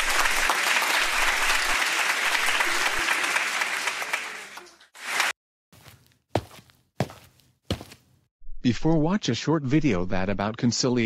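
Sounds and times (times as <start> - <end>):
applause: 0.0 - 5.4.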